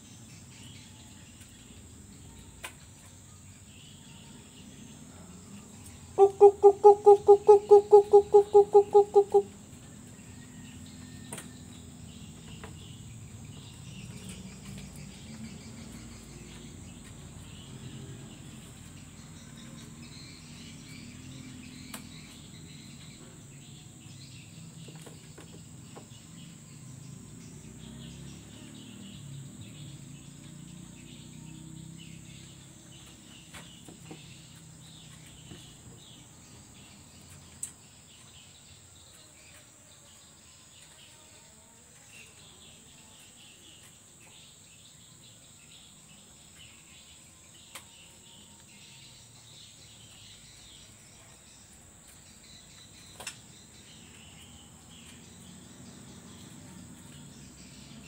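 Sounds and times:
high-pitched insect drone: 3.4s - 9.6s.

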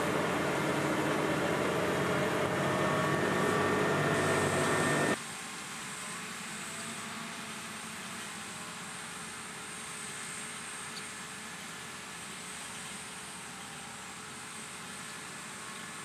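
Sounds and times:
tractor engine from inside cab: 0.0s - 5.2s
faint high whine: 0.0s - 16.0s
tractors working field outside: 0.0s - 16.0s.

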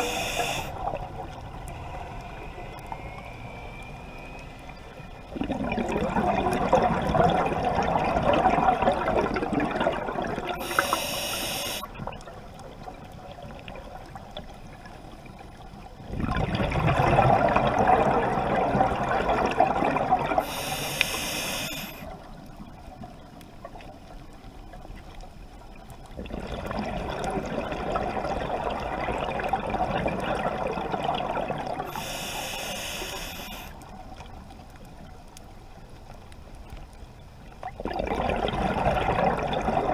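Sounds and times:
diver breathing through regulator: 0.0s - 0.8s, 10.6s - 11.9s, 20.4s - 22.1s, 31.9s - 33.8s
exhaled bubbles underwater: 0.0s - 15.0s, 15.8s - 24.0s, 26.0s - 34.4s, 37.6s - 39.9s.

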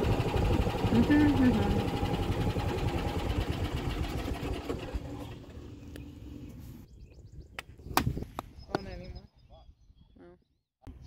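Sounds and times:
golf cart rattling and rumbling: 0.0s - 6.5s.

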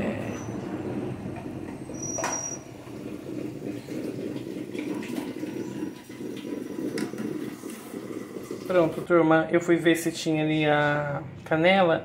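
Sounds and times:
oil bubbling and sizzling: 0.3s - 9.1s.

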